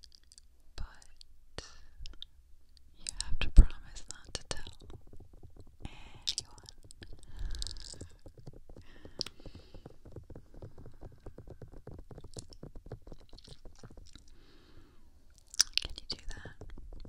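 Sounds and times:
fingertips rubbing on microphone: 3.0 - 17.0
muffled low thumps: 3.2 - 14.8, 15.8 - 17.0.

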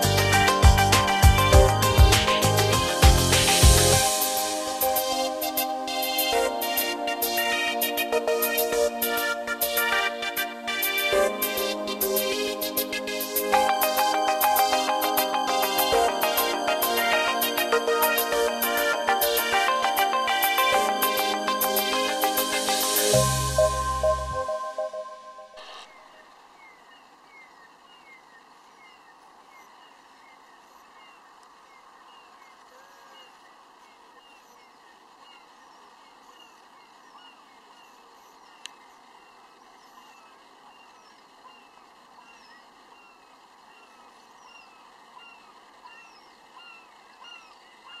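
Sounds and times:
background music: 0.0 - 25.8
bird calls with descending notes: 0.0 - 48.0
soft steady hiss: 0.0 - 48.0.

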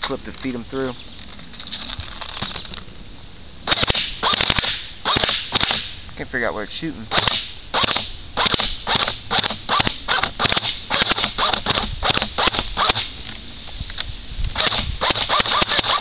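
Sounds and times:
airsoft rifle shots: 3.6 - 6.0, 7.1 - 13.2, 14.6 - 16.0.

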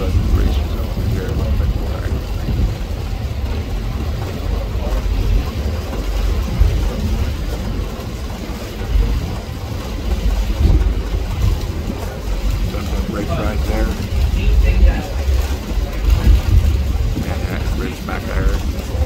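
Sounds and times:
ferry engines rumbling: 0.0 - 19.0.

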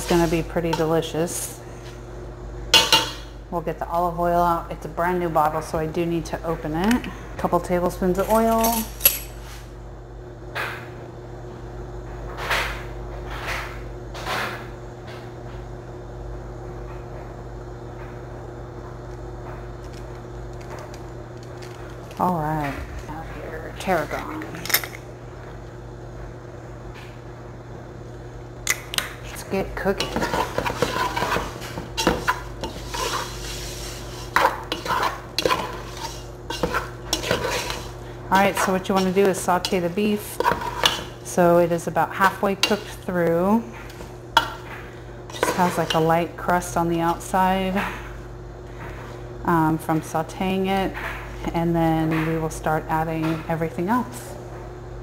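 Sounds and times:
steady low hum: 0.0 - 55.0
oil hissing in a hot pot: 30.3 - 38.2.

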